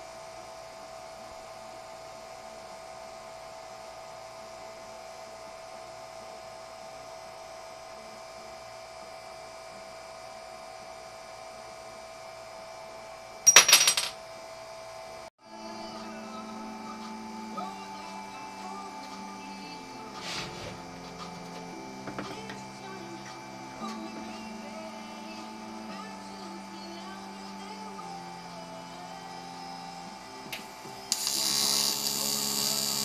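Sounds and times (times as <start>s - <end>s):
steady hum: 15.4s - 33.0s.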